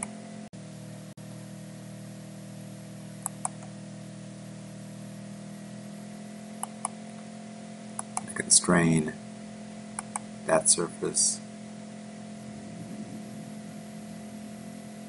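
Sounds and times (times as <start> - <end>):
low electrical hum: 0.0 - 15.0
computer mouse click: 3.2 - 3.7, 8.0 - 8.4, 10.0 - 10.3.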